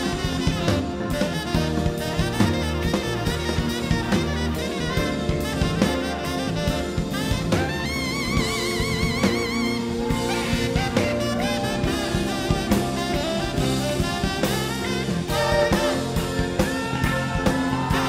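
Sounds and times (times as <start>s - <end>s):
drum kit: 0.0s - 18.0s
tenor saxophone solo: 0.0s - 18.0s.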